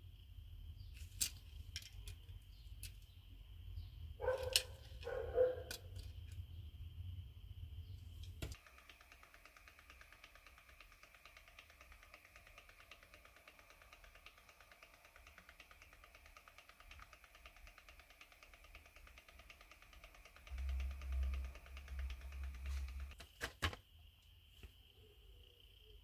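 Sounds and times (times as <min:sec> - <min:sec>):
fast even ticking: 0:08.5 - 0:23.2.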